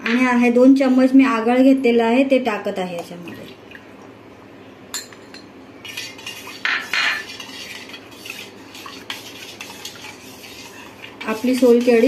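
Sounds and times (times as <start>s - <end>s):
metal spoon scraping bowl: 5.8s - 12.0s.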